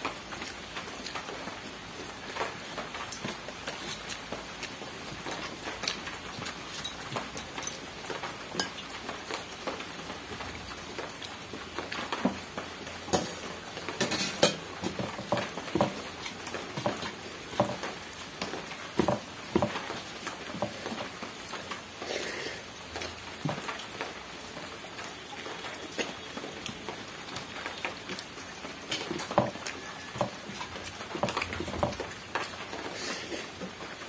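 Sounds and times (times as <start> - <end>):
chewing and lip-smacking: 0.3 - 1.6, 2.5 - 7.6.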